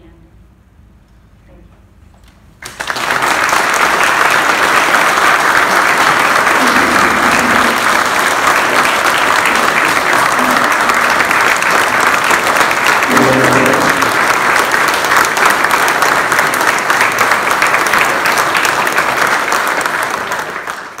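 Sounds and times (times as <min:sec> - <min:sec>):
audience applauding: 0:02.6 - 0:21.0.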